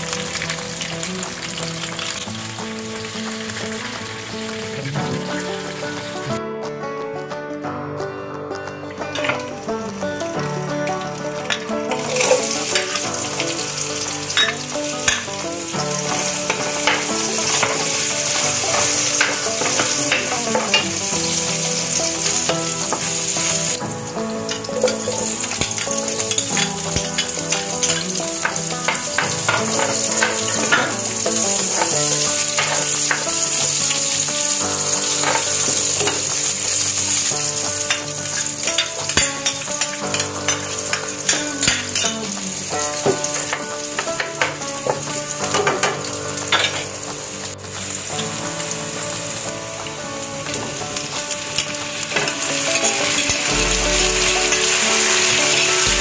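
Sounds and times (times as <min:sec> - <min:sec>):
food sizzling in hot oil: 0:00.0 - 0:06.4, 0:09.0 - 0:56.0
metal ladle scraping a pan: 0:11.4 - 0:23.8, 0:24.5 - 0:42.4, 0:51.6 - 0:56.0.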